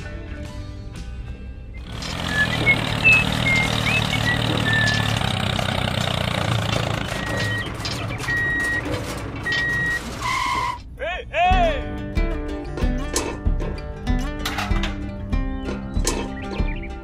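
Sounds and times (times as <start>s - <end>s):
truck engine running: 1.7s - 11.0s
reversing alarm beeping: 7.0s - 10.8s.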